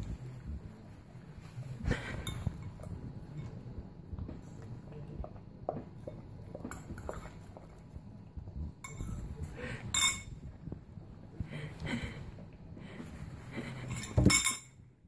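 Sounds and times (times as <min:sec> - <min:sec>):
dog eating from a bowl: 0:01.9 - 0:10.9
metal spoon clinking on bowl: 0:08.8 - 0:09.2, 0:09.9 - 0:10.4, 0:13.9 - 0:14.8.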